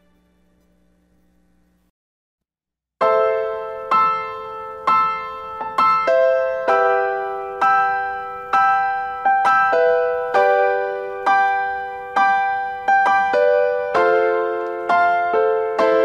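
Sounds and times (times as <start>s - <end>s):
slow piano chords: 3.0s - 16.0s.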